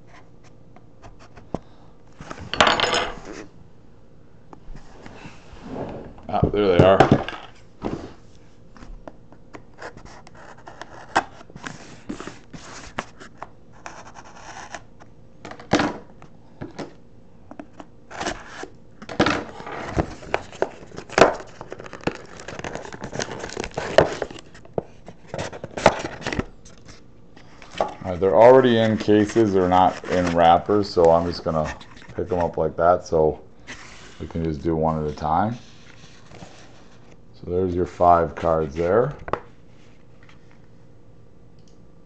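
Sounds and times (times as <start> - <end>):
cardboard box scraping and rustling: 28.7 - 31.7.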